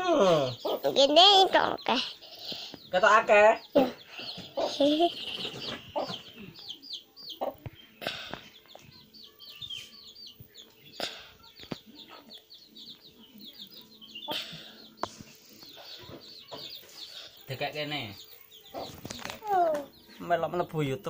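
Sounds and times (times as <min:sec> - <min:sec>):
chickens chirping: 0:00.0 - 0:21.0.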